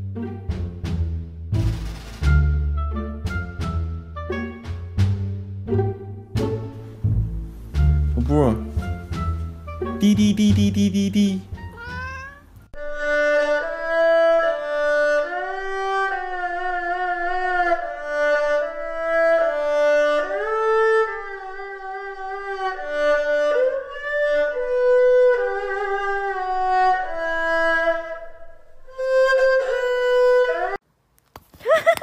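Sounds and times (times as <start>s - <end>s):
slow violin melody: 5.6s - 30.8s.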